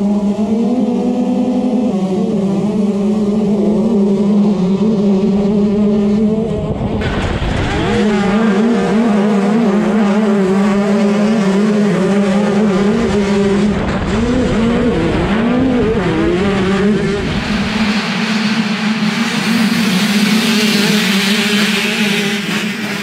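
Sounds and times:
motocross bike engine: 0:00.0 - 0:23.0
other bikes' engines: 0:00.0 - 0:23.0.

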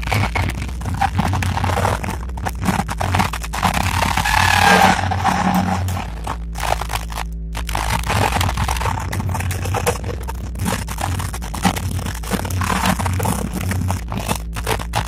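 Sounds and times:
scraping and rustling on microphone: 0:00.0 - 0:07.1
low hum: 0:00.0 - 0:15.0.

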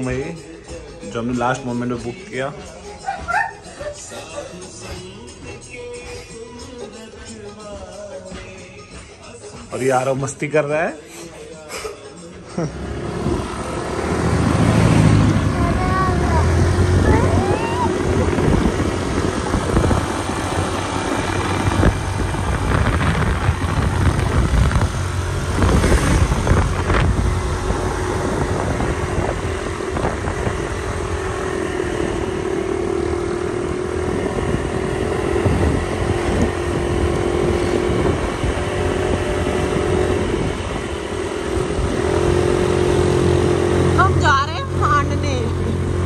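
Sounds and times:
vehicle engine hum: 0:00.0 - 0:46.0
wind over microphone: 0:13.1 - 0:44.6.

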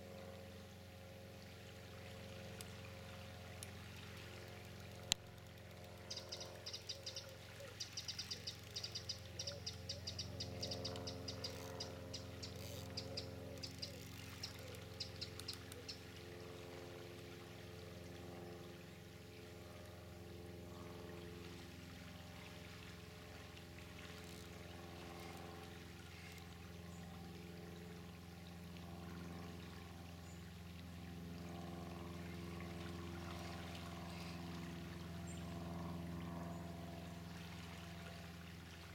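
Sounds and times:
steady low hum: 0:00.0 - 0:38.9
fishing reel clicking: 0:04.6 - 0:16.0.

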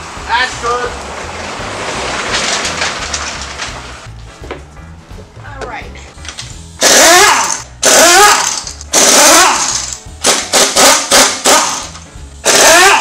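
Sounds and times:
impact wrench rattling: 0:06.8 - 0:13.0.

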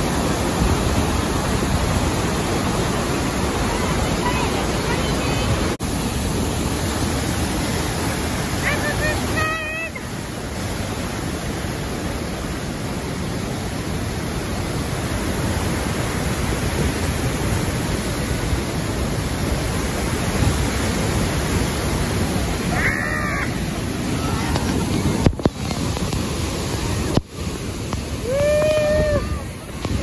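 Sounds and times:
waterfall rushing onto rocks: 0:00.0 - 0:30.0
high-pitched voice: 0:08.6 - 0:10.0.

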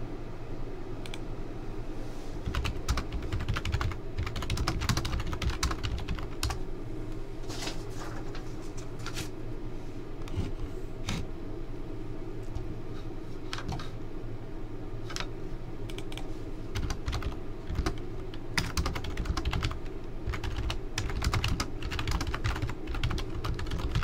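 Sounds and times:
steady low hum: 0:00.0 - 0:24.0
typing on computer keyboard: 0:02.5 - 0:06.6, 0:16.8 - 0:18.0, 0:18.6 - 0:24.0.

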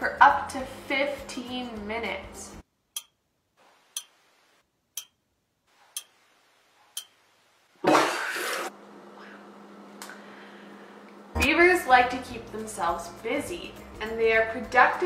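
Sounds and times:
clock-like ticks: 0:02.9 - 0:03.2, 0:03.9 - 0:04.2, 0:05.0 - 0:05.2, 0:05.8 - 0:06.3, 0:06.9 - 0:07.2.

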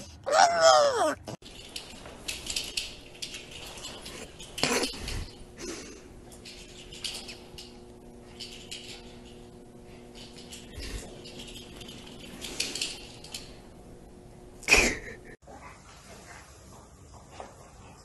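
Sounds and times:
light clinking and clicking: 0:01.4 - 0:13.8.

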